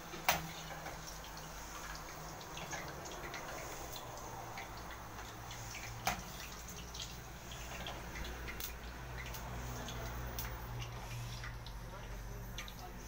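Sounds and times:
fries sizzling in hot oil: 0.0s - 13.0s.

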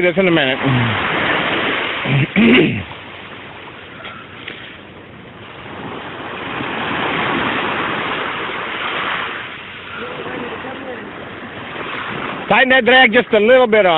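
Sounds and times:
wave rushing up the shore: 0.0s - 3.0s, 5.5s - 13.5s.

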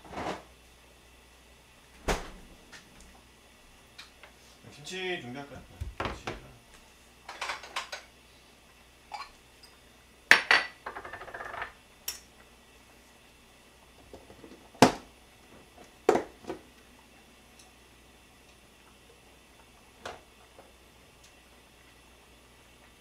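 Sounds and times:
kitchenware knocking and clattering: 10.3s - 11.8s.

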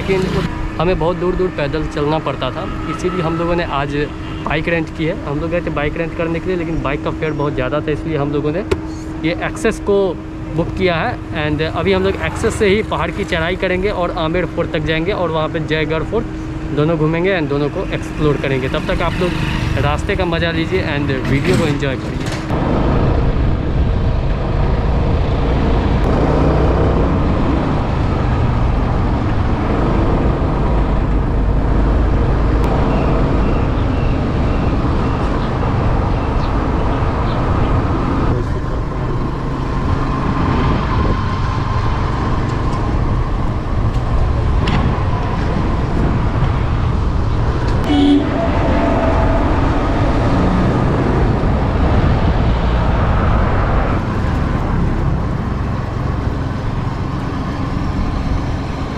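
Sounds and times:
wind and road noise: 0.0s - 58.9s.

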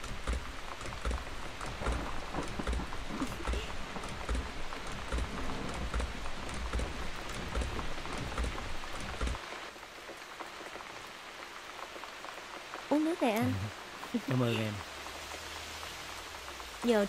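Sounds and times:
low uneven thudding: 0.0s - 9.4s
heavy rain falling: 0.0s - 17.0s.

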